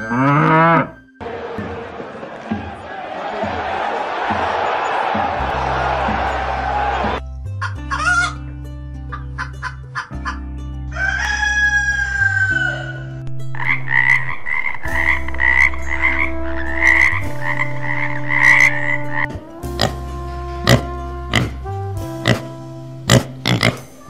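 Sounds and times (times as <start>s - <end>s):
rooster crowing: 10.9s - 13.1s
tree frog croaking: 13.5s - 20.0s, 23.1s - 23.8s.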